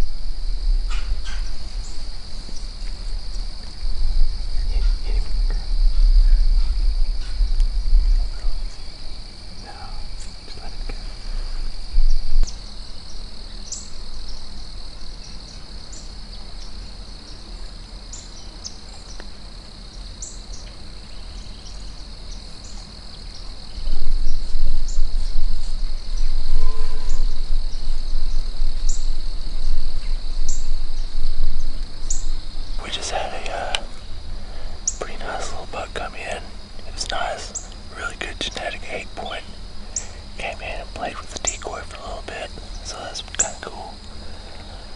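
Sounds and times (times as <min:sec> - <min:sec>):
low rumble: 0:00.0 - 0:12.6
crickets trilling: 0:00.0 - 0:44.9.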